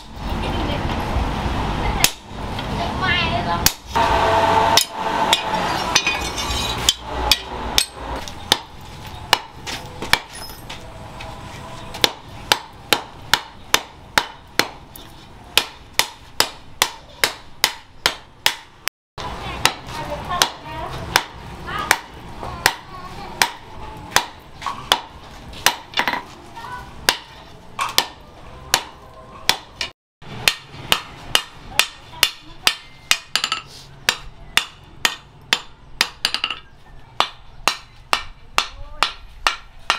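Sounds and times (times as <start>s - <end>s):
hammer striking steel on anvil: 4.7s - 8.7s, 27.1s - 36.6s.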